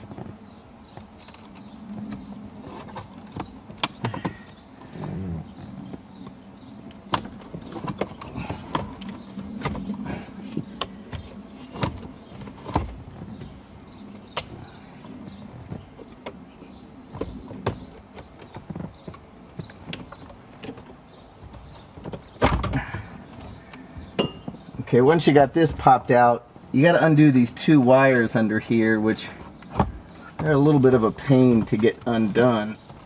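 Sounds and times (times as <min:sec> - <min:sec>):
plastic clicks and creaks: 0:00.9 - 0:10.0.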